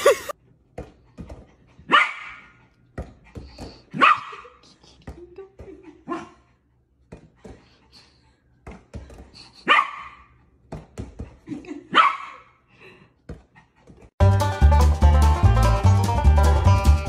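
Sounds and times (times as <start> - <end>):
puppy barking: 1.9 - 2.6, 3.9 - 4.5, 9.6 - 10.3, 11.9 - 12.5.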